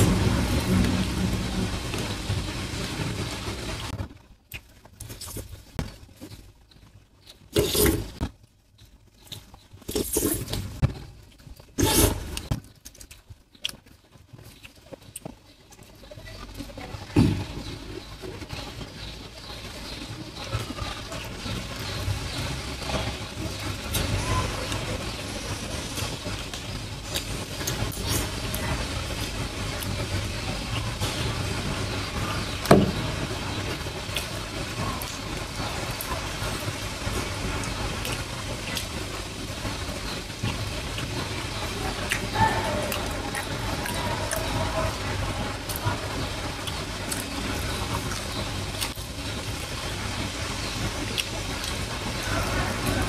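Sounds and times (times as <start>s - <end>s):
low rumble: 0.0s - 4.2s
low background rumble and hum: 0.0s - 53.0s
eating sounds: 4.5s - 53.0s.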